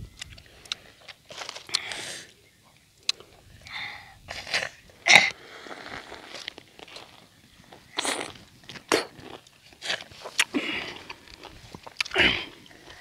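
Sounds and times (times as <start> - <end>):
person biting food: 8.0 - 12.2.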